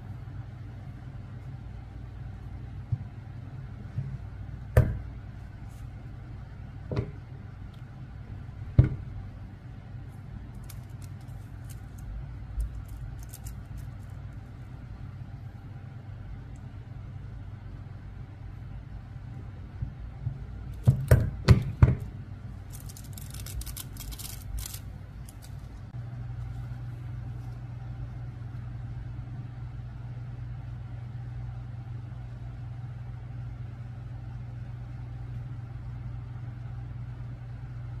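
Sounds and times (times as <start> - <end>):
steady low hum: 0.0 - 38.0
foil crinkling and rustling: 10.6 - 14.3, 22.6 - 25.9.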